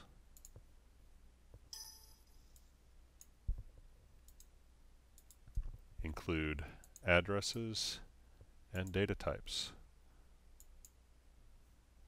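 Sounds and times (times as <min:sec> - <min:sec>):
computer mouse clicks: 0:00.4 - 0:00.7, 0:02.5 - 0:04.6, 0:05.2 - 0:05.8, 0:10.6 - 0:11.0
faint ringing: 0:01.7 - 0:02.7.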